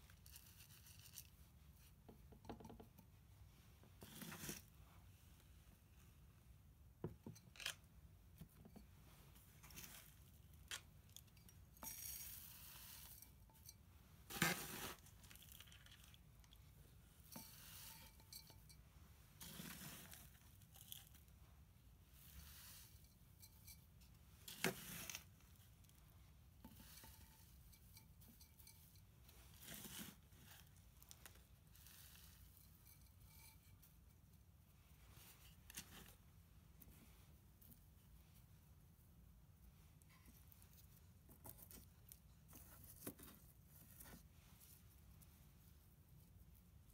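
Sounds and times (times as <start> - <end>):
potting mix pouring and rustling: 9.1 - 16.6, 19.3 - 21.4, 26.7 - 33.8.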